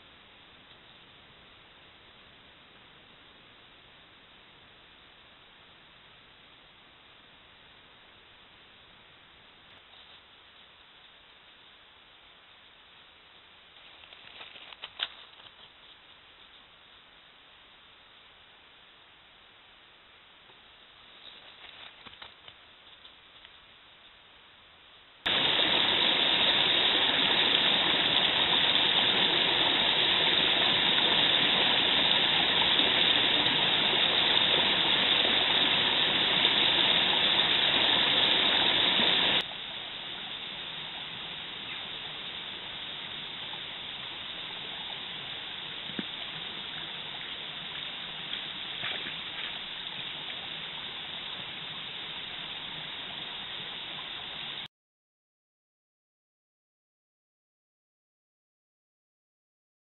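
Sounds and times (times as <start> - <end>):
stream water rushing: 25.3 - 54.6.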